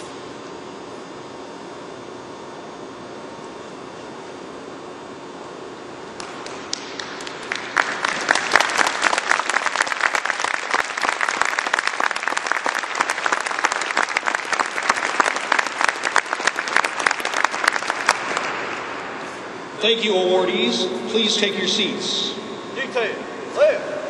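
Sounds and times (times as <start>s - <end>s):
audience applause: 6.2s - 19.3s.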